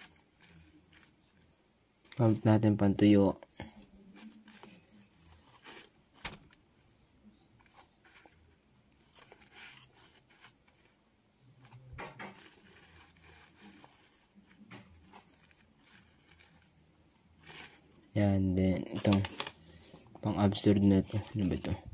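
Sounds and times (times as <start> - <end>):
cloth rubbing on glass screen: 7.5 - 18.3.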